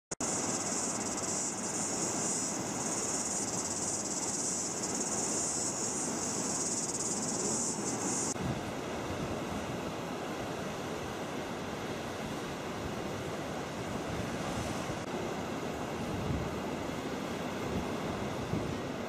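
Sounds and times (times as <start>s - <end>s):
high insect chorus: 0.2s - 8.4s.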